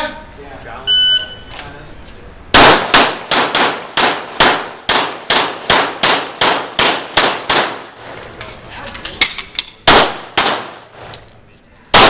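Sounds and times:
pistol shots echoing indoors: 0:02.6 - 0:07.9, 0:09.9 - 0:10.8.

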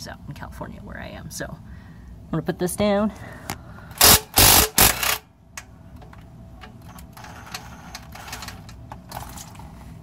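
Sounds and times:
ratchet clicking: 0:04.0 - 0:05.2.

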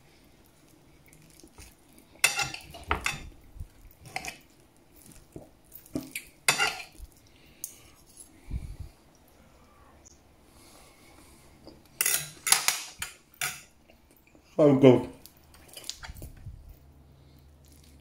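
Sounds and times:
knife and fork scraping a plate: 0:04.0 - 0:04.4, 0:06.5 - 0:07.0.

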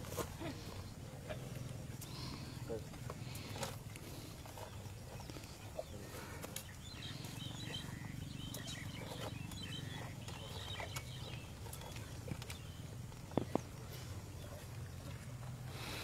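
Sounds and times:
elephants crunching corn: 0:00.0 - 0:16.0
low steady rumble: 0:00.0 - 0:16.0
bird chirps: 0:04.6 - 0:15.0.

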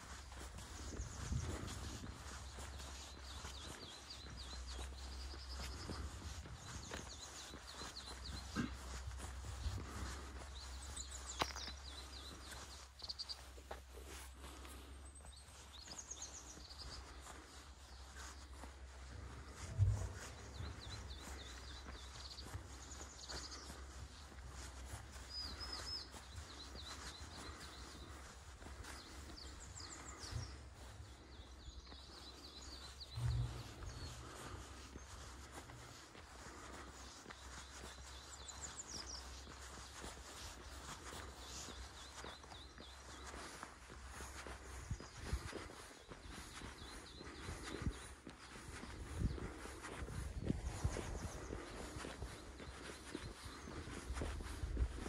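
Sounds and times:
small birds chirping: 0:00.0 - 0:55.0
steady low rumble: 0:18.8 - 0:21.8, 0:33.0 - 0:36.8
low rumble: 0:19.6 - 0:20.8, 0:33.1 - 0:34.6.

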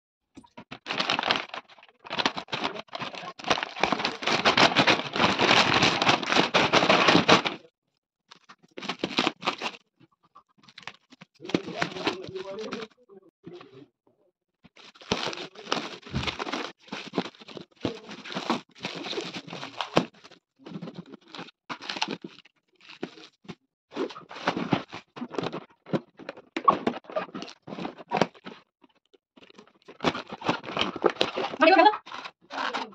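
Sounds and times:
plastic film tearing and crinkling: 0:00.7 - 0:07.6, 0:08.3 - 0:09.8, 0:10.6 - 0:12.9, 0:14.8 - 0:23.3, 0:24.0 - 0:28.6, 0:29.5 - 0:32.9.

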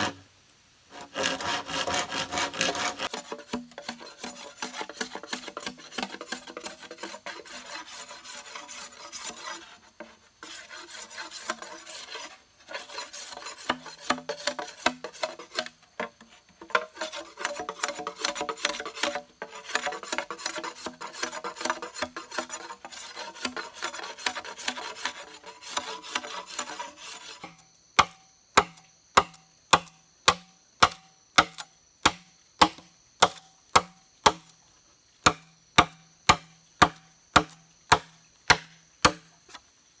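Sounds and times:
machete scraping bamboo: 0:00.0 - 0:00.2, 0:00.9 - 0:34.6, 0:35.2 - 0:39.7
machete chopping bamboo: 0:27.4 - 0:34.5, 0:35.2 - 0:39.3.

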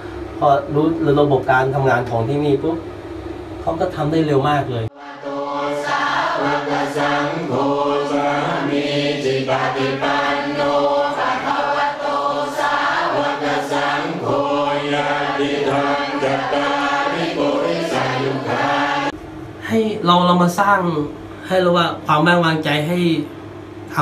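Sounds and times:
monks chanting in unison: 0:04.9 - 0:19.2.

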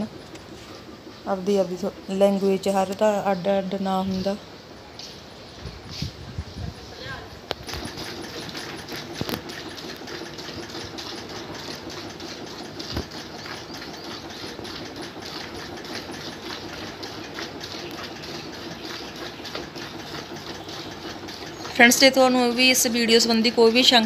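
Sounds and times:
milk squirting into steel bucket: 0:07.6 - 0:22.1.

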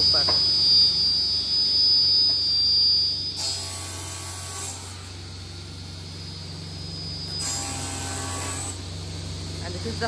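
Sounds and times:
panel saw humming: 0:03.3 - 0:10.0.

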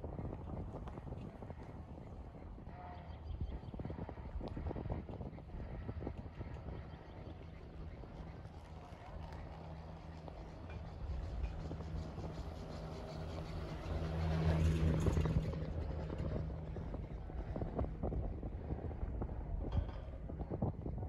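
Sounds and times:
chairlift humming: 0:08.5 - 0:19.0.

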